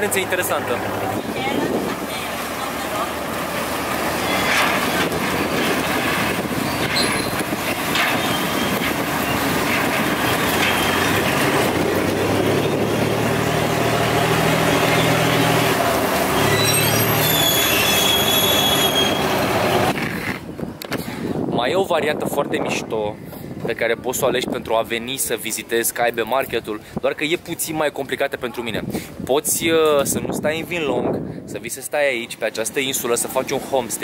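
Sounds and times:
ferry engine running: 0.0s - 20.2s
high squeal of boat on pontoon: 4.1s - 5.1s, 6.6s - 7.4s, 8.1s - 9.6s, 10.4s - 11.2s, 16.3s - 19.9s.

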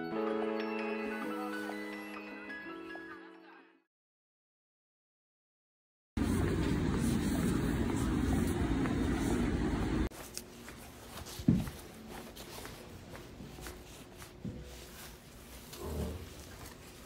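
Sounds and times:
low street rumble: 6.2s - 10.1s.

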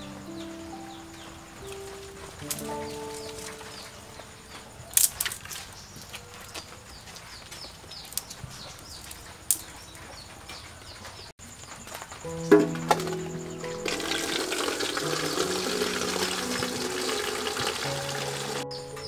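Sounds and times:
twig fire crackling and popping: 4.5s - 9.8s.

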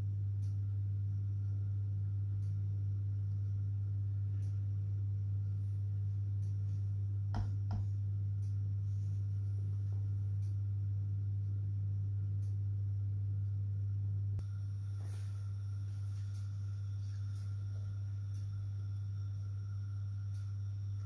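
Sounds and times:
steady low hum: 0.0s - 21.0s
click: 2.4s - 2.6s.

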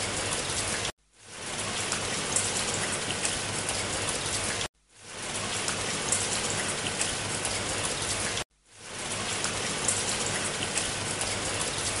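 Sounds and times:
rain hiss: 0.0s - 12.0s
rain drop ticks: 1.6s - 4.7s, 5.3s - 8.4s, 9.0s - 12.0s.

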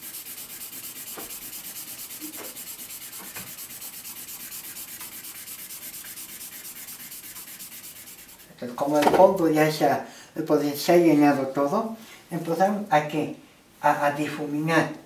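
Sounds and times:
pencil scribbling on paper: 0.0s - 8.5s.

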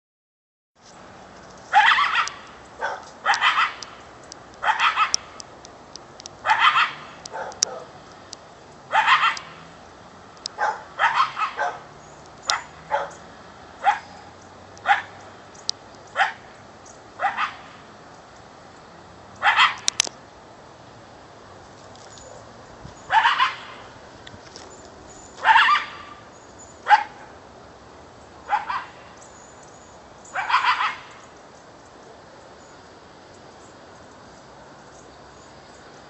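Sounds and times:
coyote barking: 1.7s - 4.0s, 4.6s - 5.4s, 6.4s - 8.0s, 8.9s - 9.6s, 10.4s - 15.3s, 16.1s - 17.8s, 19.4s - 20.1s, 22.2s - 24.0s, 25.4s - 27.4s, 28.4s - 29.2s, 30.2s - 31.3s.

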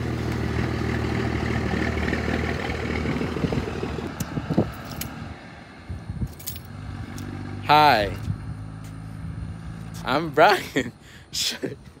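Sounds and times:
engine idling: 0.0s - 4.2s.

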